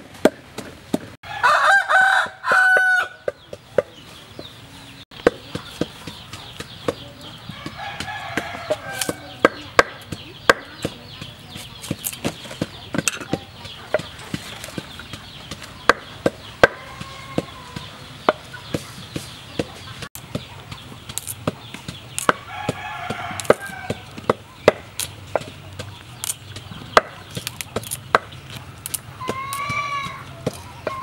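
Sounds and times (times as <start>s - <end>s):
chicken calling: 13.6s - 20.1s, 28.9s - 31.0s.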